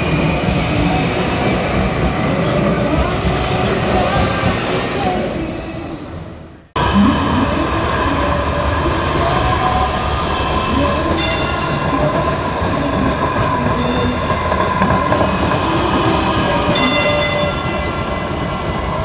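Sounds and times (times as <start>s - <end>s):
light rail vehicle passing: 0.0s - 19.0s.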